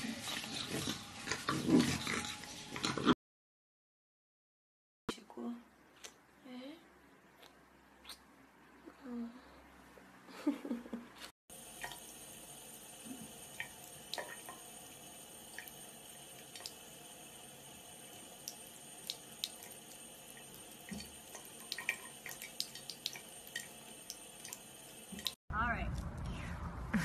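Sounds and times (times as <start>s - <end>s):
water drips and splashes: 11.5s - 25.4s.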